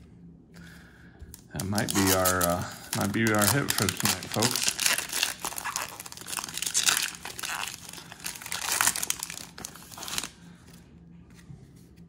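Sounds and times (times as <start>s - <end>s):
foil wrapper tearing and crinkling: 1.6s - 10.4s.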